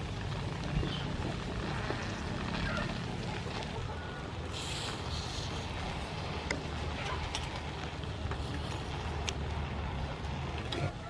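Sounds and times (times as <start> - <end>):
low steady rumble: 0.0 - 11.0
snails sizzling on a grill: 0.0 - 11.0
brief hiss: 4.5 - 5.7.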